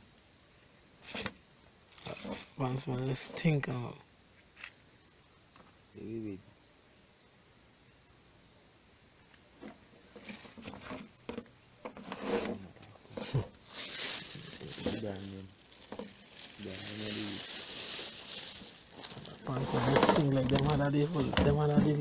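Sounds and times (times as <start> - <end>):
plastic bag rustling: 1.9 - 2.6, 12.4 - 22.0.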